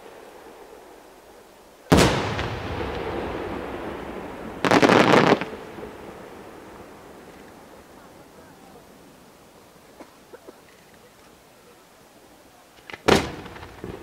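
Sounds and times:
firework crackling: 0.0 - 11.4, 12.7 - 14.0
firework bang: 1.9 - 7.5, 12.9 - 14.0.

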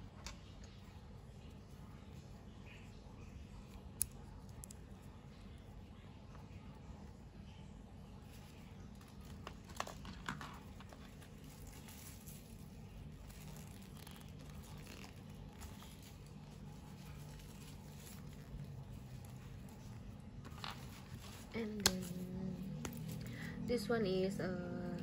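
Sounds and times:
steady low hum: 0.0 - 25.0
plastic wrappers crinkling: 9.0 - 23.5.

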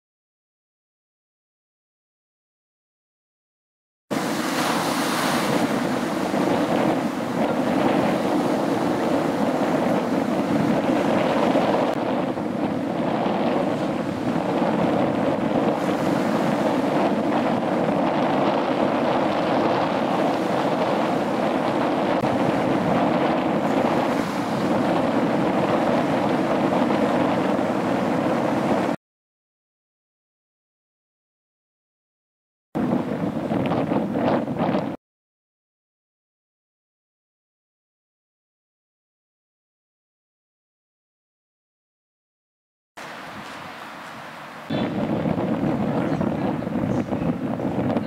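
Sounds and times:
ocean surf breaking: 4.1 - 29.0, 43.0 - 48.0
wind buffeting microphone: 4.1 - 29.0, 32.8 - 35.0, 43.0 - 48.0.

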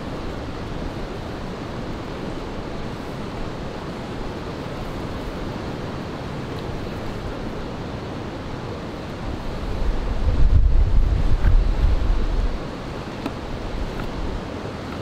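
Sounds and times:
wind blowing against microphone: 0.0 - 15.0
wind buffeting microphone: 9.2 - 14.9.

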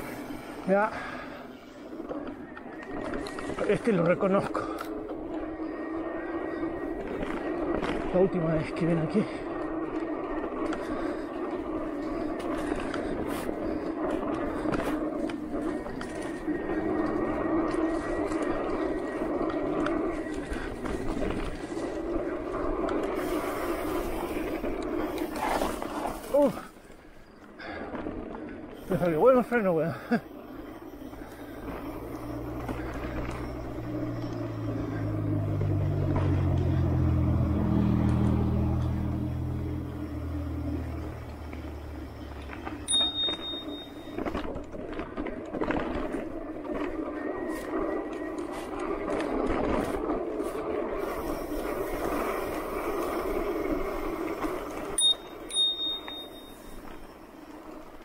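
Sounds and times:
electric bike motor hum: 0.0 - 58.0
bicycle bell ringing: 42.8 - 44.4, 54.9 - 57.1.

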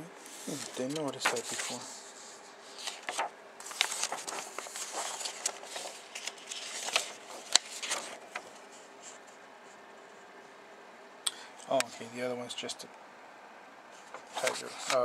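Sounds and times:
paper rustling and crinkling: 0.3 - 9.4, 14.0 - 15.0.

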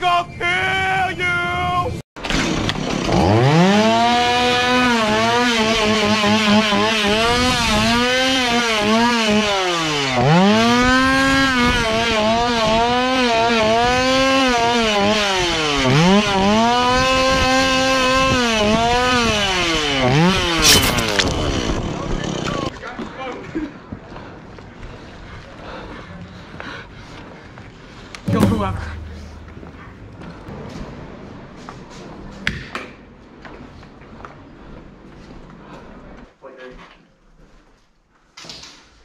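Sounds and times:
chainsaw engine revving: 2.2 - 22.7.

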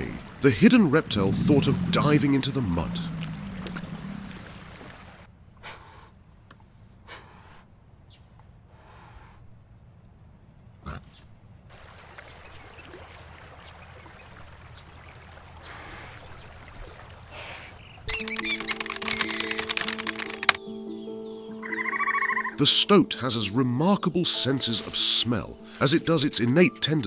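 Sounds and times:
low steady rumble: 0.1 - 5.3
deer breathing and snorting: 5.6 - 7.7, 8.7 - 9.5.

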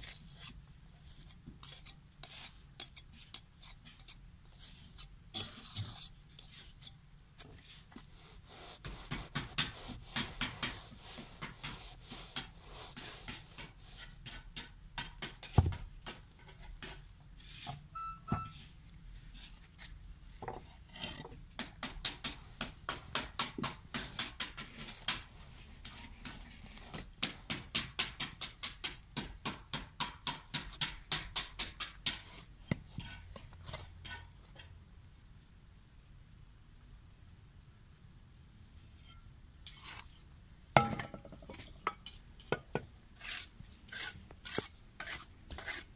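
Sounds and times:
sharp taps packing sand: 8.8 - 17.0, 21.5 - 32.5.

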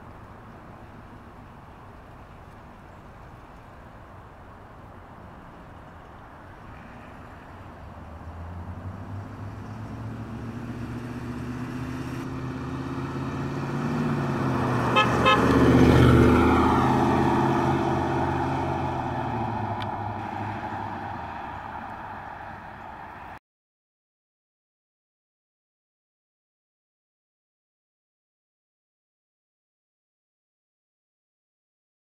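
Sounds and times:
pickup truck engine driving past: 7.9 - 23.2
car horn toots: 14.9 - 15.6.

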